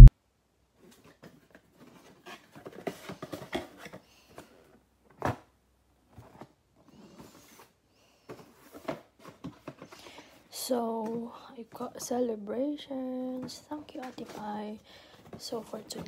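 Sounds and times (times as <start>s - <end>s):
cardboard box rustling and scraping: 0.9s - 4.0s.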